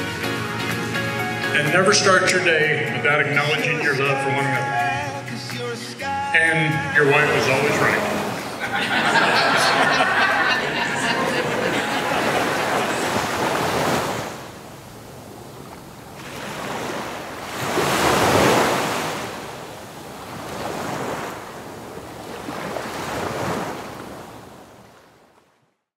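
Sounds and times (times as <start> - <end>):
ocean waves rolling in: 6.2 - 25.8.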